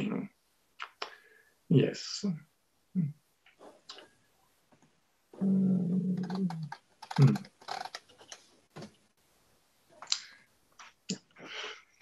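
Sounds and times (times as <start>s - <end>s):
person's voice: 0.0s - 1.0s, 1.7s - 3.2s, 5.4s - 7.5s
typing-like clicks: 6.2s - 8.4s.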